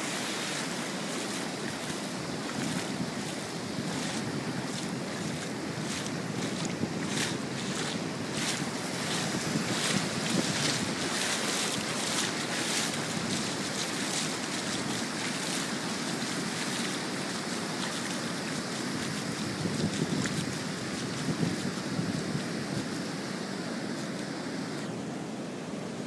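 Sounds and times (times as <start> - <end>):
ocean surf breaking: 0.0 - 19.7
wind buffeting microphone: 0.6 - 24.7.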